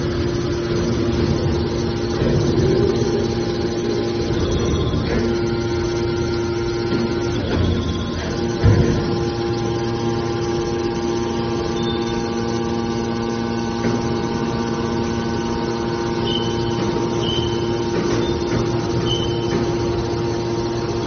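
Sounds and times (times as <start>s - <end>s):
hydraulic baler humming: 0.0s - 21.0s
short high squeaks: 16.2s - 19.6s.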